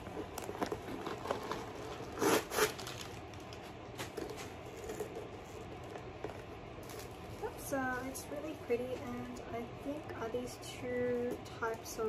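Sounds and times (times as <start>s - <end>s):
handbag rustling and clicking: 0.0s - 7.7s.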